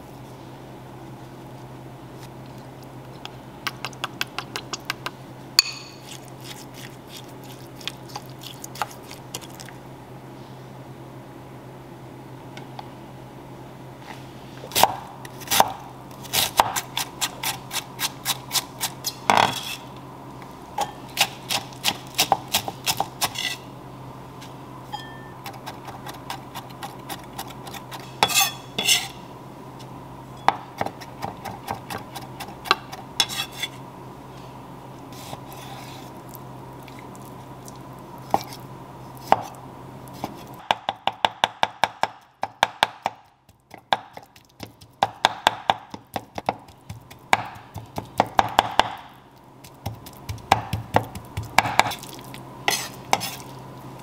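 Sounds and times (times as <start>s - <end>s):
knife chopping on wooden board: 14.8s - 18.6s, 40.2s - 49.1s, 49.8s - 52.1s.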